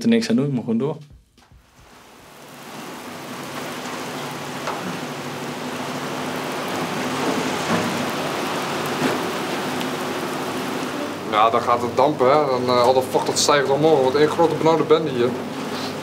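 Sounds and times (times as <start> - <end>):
raindrop splats: 1.1 - 11.0
heavy rain hiss: 1.4 - 16.0.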